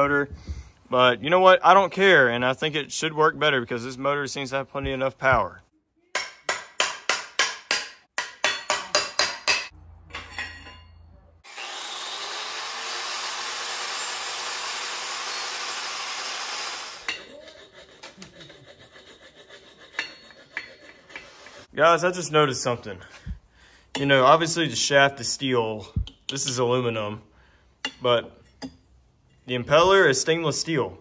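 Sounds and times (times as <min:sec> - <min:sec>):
angle grinder running: 0:11.5 - 0:17.1.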